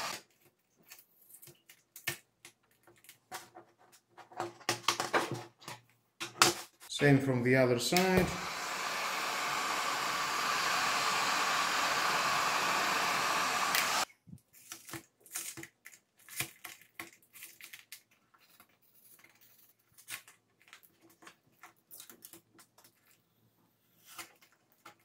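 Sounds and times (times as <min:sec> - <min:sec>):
heat gun blowing: 0:00.0 - 0:00.2, 0:07.0 - 0:14.1.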